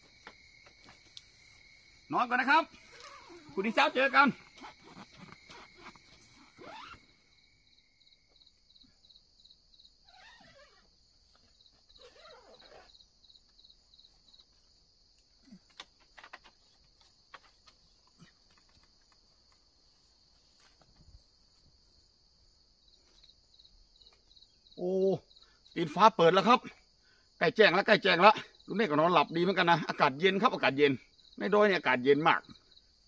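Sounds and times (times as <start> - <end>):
insects chirring: 0.0 - 33.0
soft rustles and ticks: 13.4 - 21.8.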